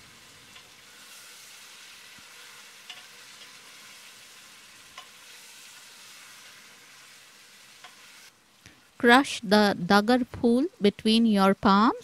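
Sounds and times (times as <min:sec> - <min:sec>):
food sizzling in a pot: 0:00.0 - 0:09.4.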